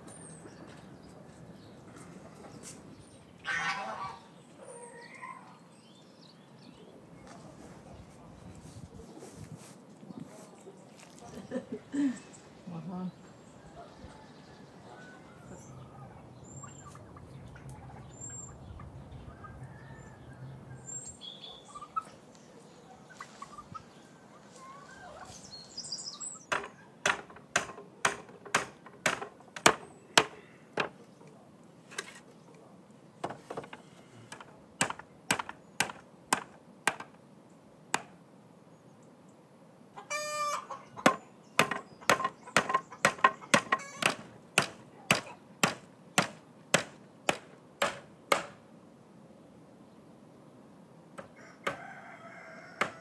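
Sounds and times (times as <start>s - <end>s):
poultry call: 3.4s - 5.6s, 40.0s - 41.1s
hammer driving nails into wood: 26.5s - 30.9s, 33.2s - 37.2s, 41.1s - 48.6s.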